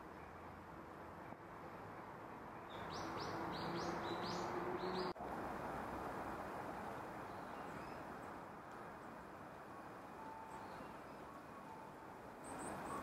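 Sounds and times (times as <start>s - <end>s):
small birds chipping: 2.7s - 5.2s.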